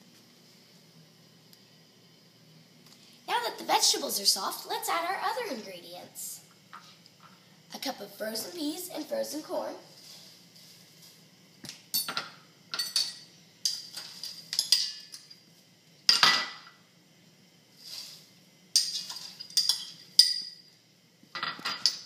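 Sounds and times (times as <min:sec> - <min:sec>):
metal spoon clinking glass bowls: 0:12.0 - 0:15.4, 0:18.8 - 0:20.6.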